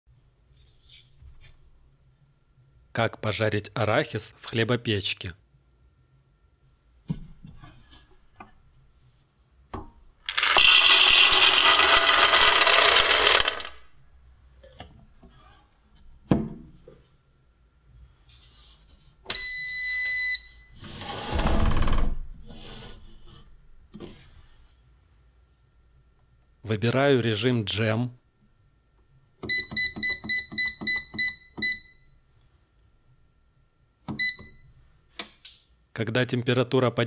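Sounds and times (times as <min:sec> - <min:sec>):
peanuts pouring into metal pan: 0:10.3 - 0:13.8.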